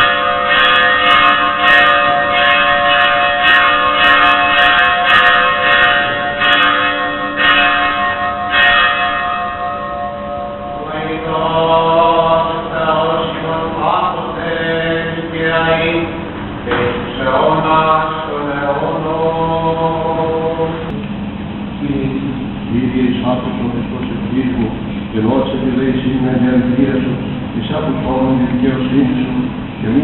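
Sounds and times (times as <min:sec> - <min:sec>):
church bell ringing: 0:00.0 - 0:20.9, 0:24.9 - 0:30.0
person chanting: 0:10.8 - 0:21.0, 0:21.9 - 0:30.0.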